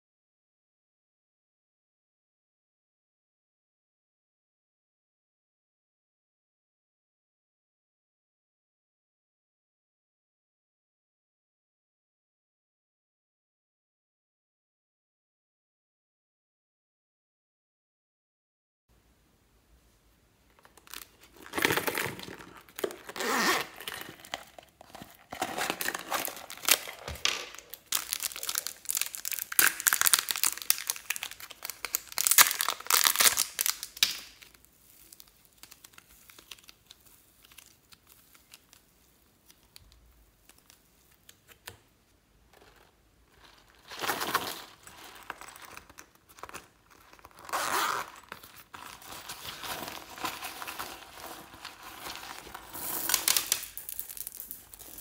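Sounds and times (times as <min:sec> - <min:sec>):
purse crinkling and rustling: 0:20.5 - 0:41.3, 0:42.5 - 0:55.0.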